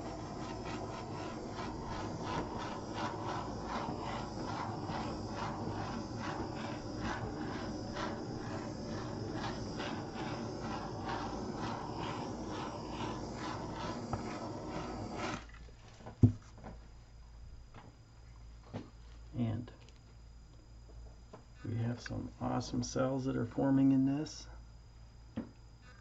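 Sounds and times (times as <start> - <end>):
torch flame hissing: 0.0 - 15.6.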